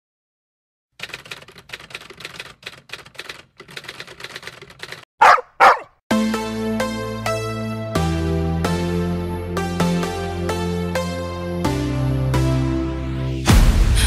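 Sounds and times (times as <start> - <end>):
typewriter key clicks: 1.0 - 5.0
dog barks: 5.2 - 6.0.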